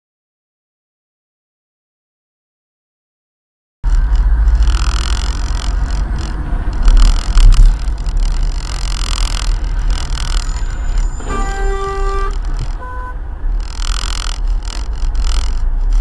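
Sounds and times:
car engine and road rumble: 3.8 - 16.0.

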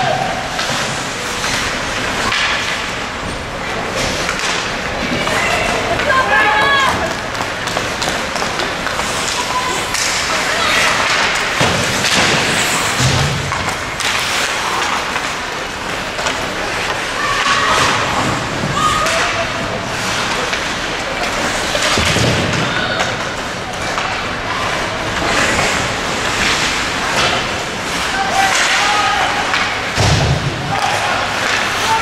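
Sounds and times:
voices shouting: 5.0 - 7.4, 16.9 - 20.2, 27.9 - 29.9
thuds against rink boards: 10.9 - 15.3, 21.8 - 23.2, 28.4 - 31.8.

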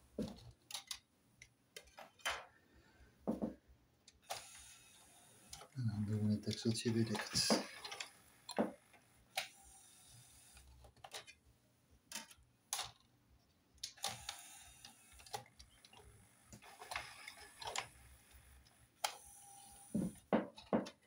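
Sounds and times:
clicks of plastic parts: 0.2 - 2.5, 10.6 - 11.4, 12.1 - 13.1.

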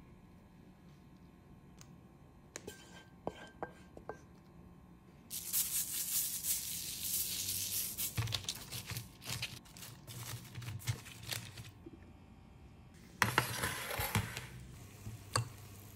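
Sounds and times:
seasoning sprinkled crackly hiss: 5.3 - 11.7.

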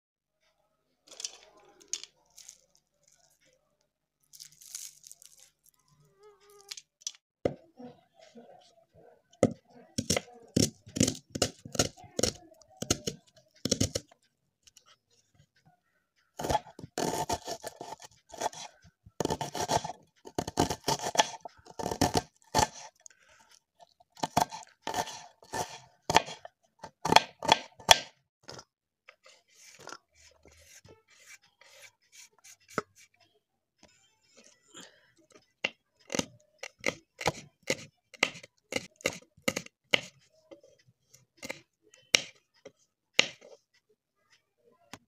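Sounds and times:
knife chopping onion on board: 9.4 - 14.0, 16.4 - 22.9, 24.2 - 28.1, 36.1 - 40.2, 43.2 - 43.4.

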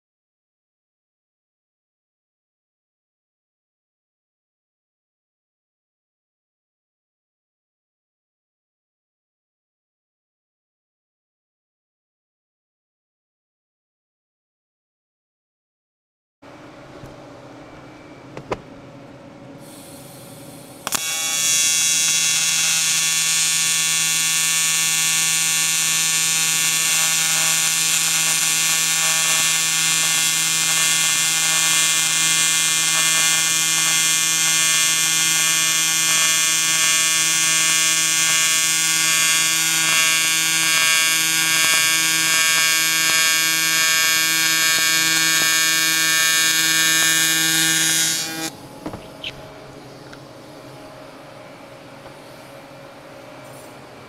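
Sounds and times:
welding arc buzzing: 19.7 - 49.4.

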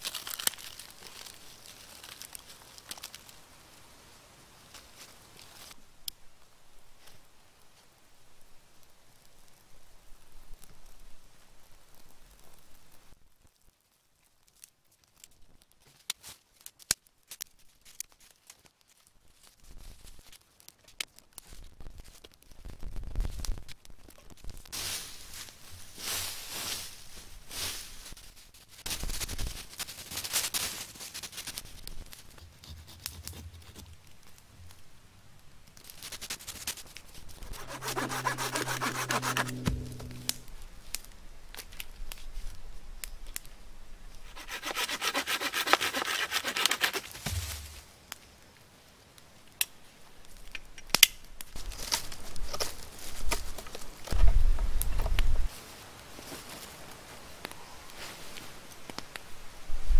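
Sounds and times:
campfire twigs snapping: 0.0 - 3.4, 14.4 - 19.1, 40.9 - 43.6, 49.4 - 54.2, 58.3 - 59.3
footsteps in dry leaves: 0.0 - 3.4, 24.7 - 32.3, 35.8 - 40.2, 44.3 - 48.0
hand saw cutting wood: 37.4 - 40.4, 44.3 - 47.4.

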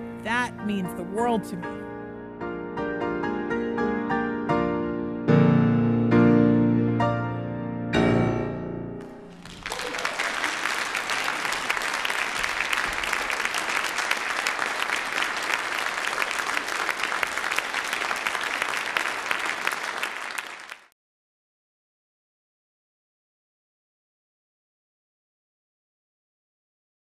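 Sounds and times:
piano chords: 0.0 - 9.5
audience applauding: 9.0 - 21.0.

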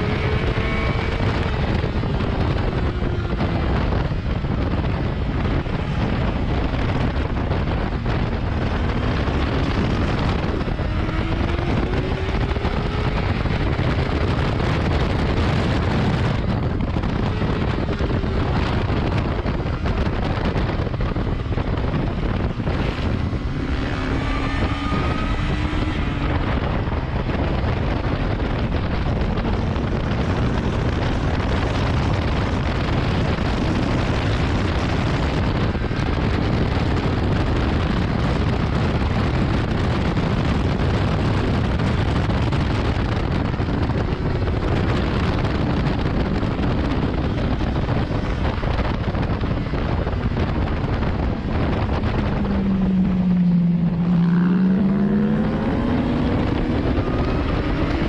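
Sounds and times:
heavy wind on microphone: 0.0 - 58.0
motorcycle engine running: 0.0 - 58.0.

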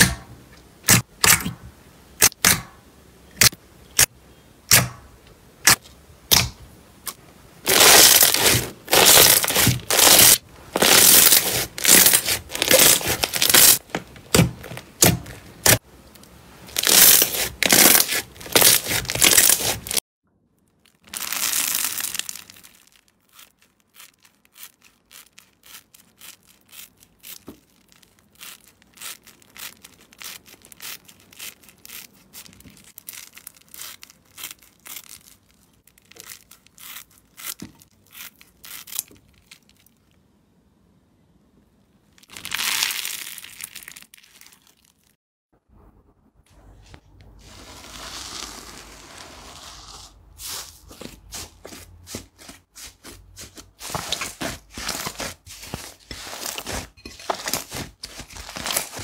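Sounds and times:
slime crackling and popping: 7.7 - 15.8, 16.7 - 20.0, 20.6 - 40.1, 42.2 - 45.1, 53.9 - 59.0.

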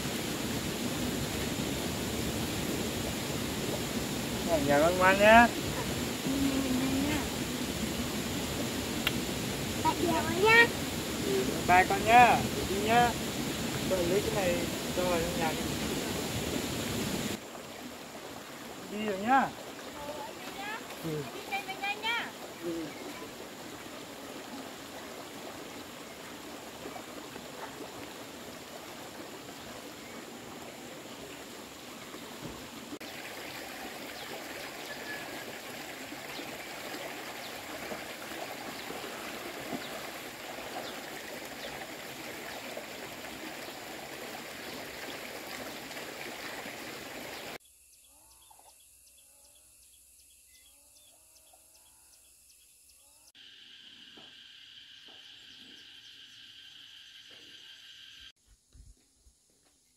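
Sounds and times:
water flowing in stony stream: 0.0 - 47.6
insect chirring: 47.6 - 59.9.

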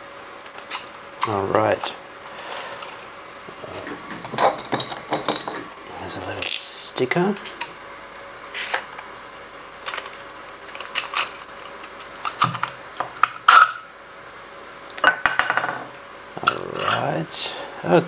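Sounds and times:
metal parts clicking and scraping: 9.8 - 12.7.

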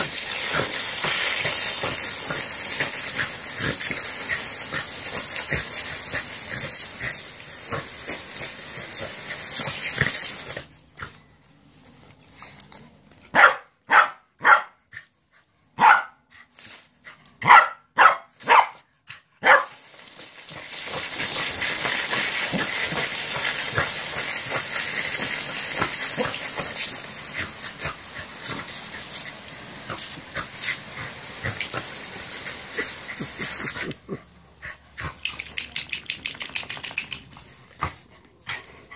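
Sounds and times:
sprinkler water spray hiss: 0.0 - 11.1, 16.4 - 17.4, 18.3 - 38.9
dog barking: 13.3 - 14.8, 15.8 - 16.2, 17.4 - 19.8.

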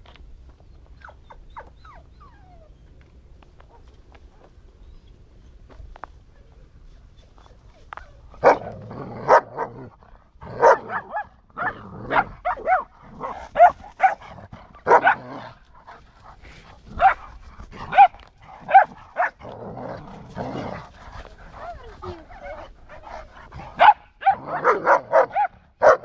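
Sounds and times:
dog barking: 8.4 - 9.8, 10.5 - 15.4, 17.0 - 17.3, 17.9 - 19.4, 23.8 - 26.0.

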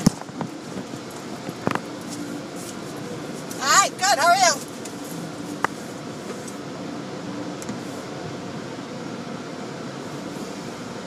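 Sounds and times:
car ventilation fan humming: 0.0 - 11.0.

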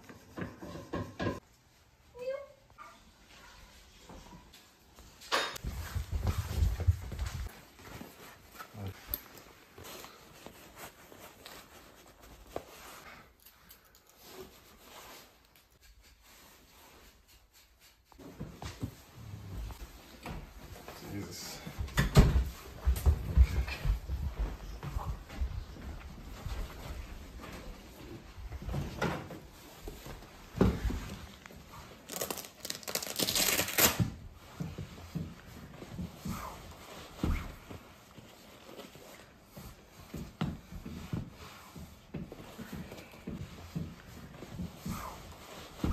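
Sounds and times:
clothing rustling: 1.5 - 45.9
velcro strap ripped open: 32.1 - 34.0.

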